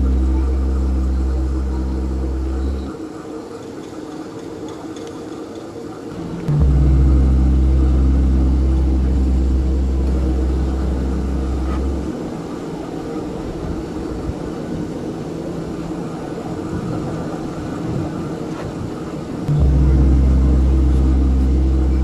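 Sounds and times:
deep steady hum: 0:00.0 - 0:03.1, 0:06.2 - 0:12.5, 0:19.5 - 0:22.0
background noise: 0:00.0 - 0:22.0.

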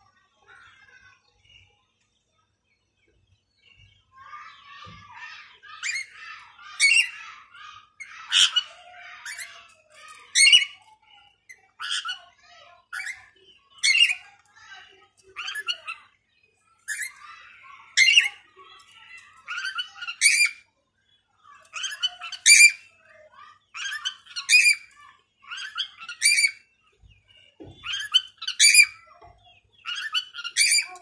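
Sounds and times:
parakeet squawking: 0:04.3 - 0:10.8, 0:11.6 - 0:16.1, 0:16.9 - 0:20.6, 0:21.5 - 0:26.6, 0:27.8 - 0:29.2, 0:29.8 - 0:31.0.

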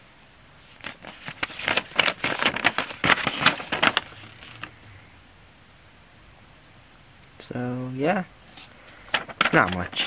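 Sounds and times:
paper crackling and rustling: 0:00.6 - 0:04.8, 0:08.5 - 0:10.0.

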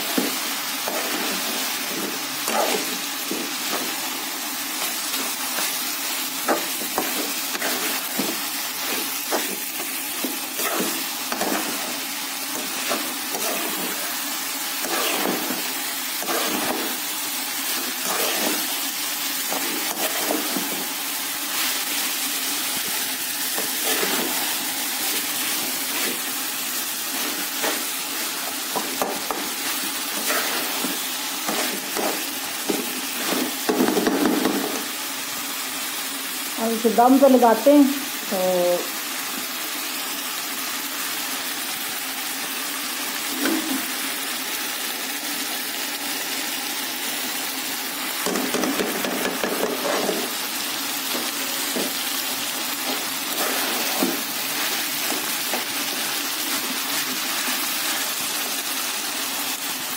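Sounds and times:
food sizzling in a pan: 0:00.0 - 0:59.9
metal spoon scraping a pan: 0:00.8 - 0:04.0, 0:06.5 - 0:09.6, 0:10.6 - 0:14.0, 0:14.8 - 0:16.9, 0:17.9 - 0:18.7, 0:19.5 - 0:20.8, 0:30.1 - 0:33.6, 0:48.6 - 0:50.4, 0:52.8 - 0:55.8.

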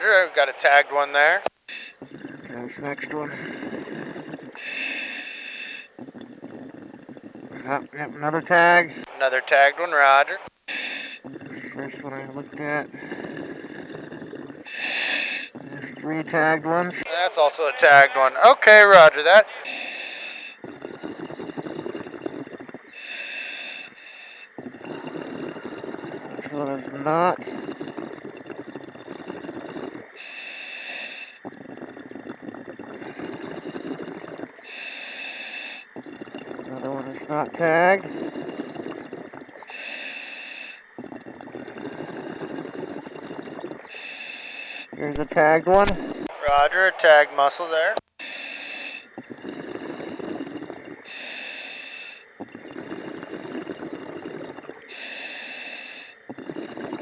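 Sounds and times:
exhaled bubbles crackling: 0:00.0 - 0:57.0
diver inhaling hissing air: 0:01.7 - 0:08.0, 0:10.6 - 0:16.7, 0:18.8 - 0:37.0, 0:37.6 - 0:45.0, 0:48.2 - 0:57.0
hiss of inhaled air: 0:03.3 - 0:06.0, 0:10.7 - 0:11.3, 0:12.9 - 0:15.6, 0:19.5 - 0:26.1, 0:29.4 - 0:31.5, 0:33.0 - 0:35.9, 0:39.6 - 0:41.0, 0:43.9 - 0:44.9, 0:51.0 - 0:52.3, 0:54.9 - 0:56.2.

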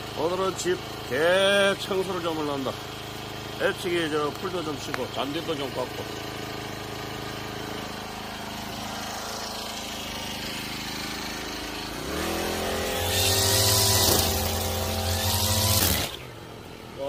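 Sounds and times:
brush cutter engine revving: 0:00.0 - 0:17.0.

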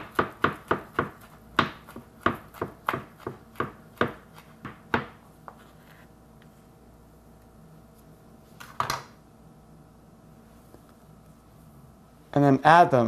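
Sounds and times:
knife chopping on wooden board: 0:00.0 - 0:05.6.

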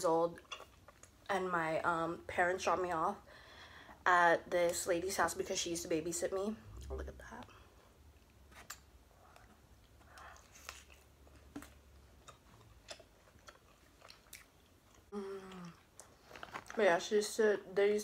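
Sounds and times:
person chewing with mouth closed: 0:08.5 - 0:16.7.

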